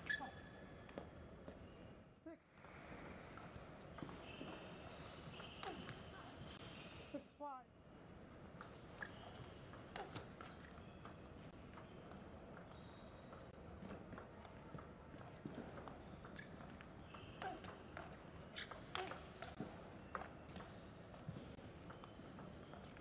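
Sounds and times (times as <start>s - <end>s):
shoes squeaking on floor: 3.4s - 7.2s, 8.9s - 14.0s, 15.3s - 17.7s, 20.0s - 23.0s
table tennis ball clicking: 8.6s - 19.6s.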